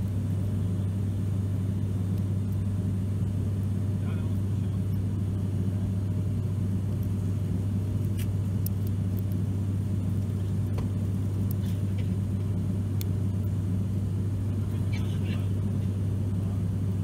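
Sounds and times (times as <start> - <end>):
propeller airliner cabin drone: 0.0 - 17.0.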